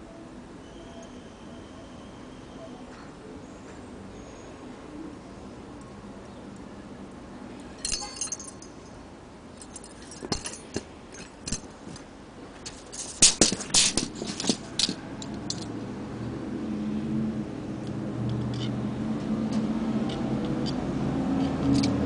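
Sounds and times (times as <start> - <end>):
metal spurs and chains clinking: 7.8 - 9.0, 9.6 - 12.0, 12.6 - 15.8, 18.5 - 18.8, 20.0 - 22.0.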